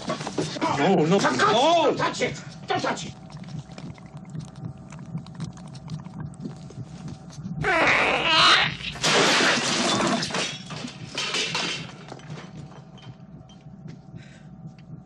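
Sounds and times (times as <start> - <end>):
dishes and glass breaking: 9.0 - 12.1.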